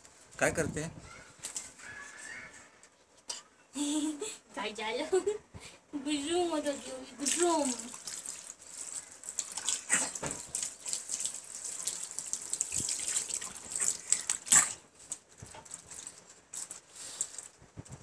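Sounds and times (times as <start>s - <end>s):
hose water splashing on floor: 7.2s - 17.6s.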